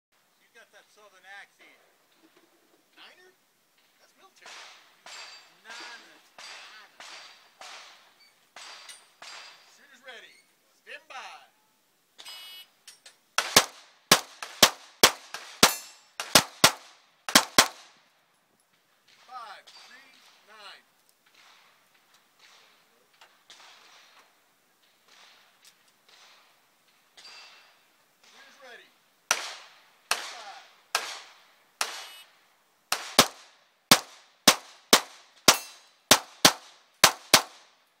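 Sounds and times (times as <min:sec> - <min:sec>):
pistol shots with echo: 0:13.4 - 0:17.8, 0:29.3 - 0:32.1, 0:32.9 - 0:37.6
metallic ring of steel target: 0:15.6 - 0:16.2, 0:35.5 - 0:35.8.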